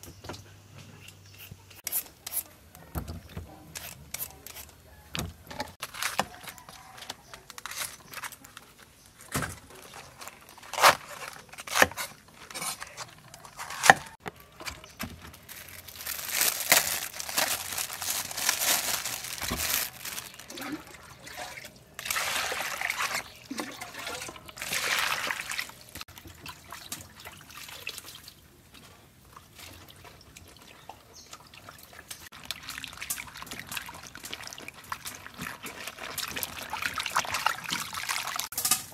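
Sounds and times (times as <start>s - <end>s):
water splashing in a basin: 19.2s - 38.8s.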